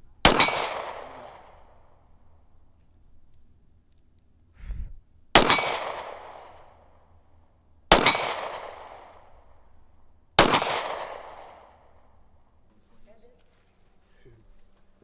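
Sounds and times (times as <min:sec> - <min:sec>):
handgun shots with echo: 0:00.2 - 0:01.7, 0:05.4 - 0:06.7, 0:07.9 - 0:09.2, 0:10.4 - 0:11.8.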